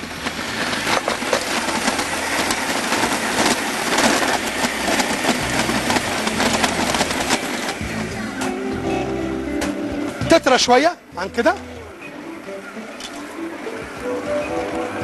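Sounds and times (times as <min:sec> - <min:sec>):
stand mixer motor: 0:00.0 - 0:08.2.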